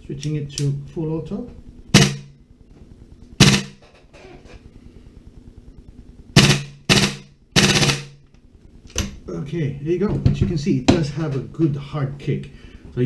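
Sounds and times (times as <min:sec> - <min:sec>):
airsoft rifle bursts: 0:03.4 - 0:03.8, 0:06.4 - 0:08.2.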